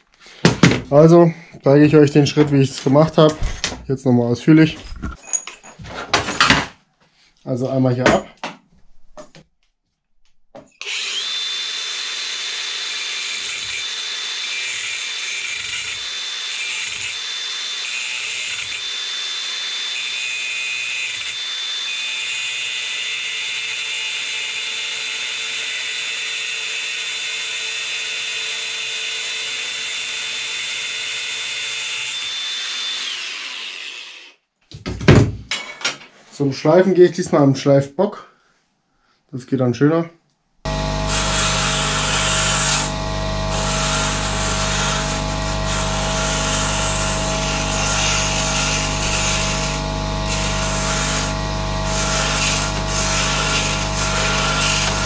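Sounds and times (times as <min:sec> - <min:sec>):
angle grinder whining: 0:10.6 - 0:34.4, 0:40.7 - 0:55.0.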